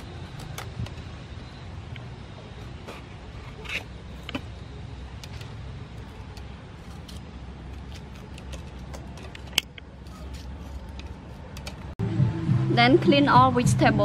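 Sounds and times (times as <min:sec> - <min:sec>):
knife cutting and scraping peppers: 0:02.6 - 0:04.6, 0:05.2 - 0:11.9.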